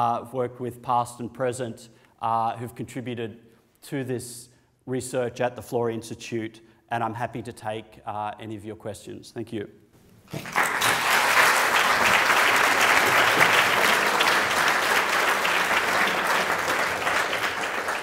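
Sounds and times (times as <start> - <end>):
audience applauding: 10.3 - 18.0.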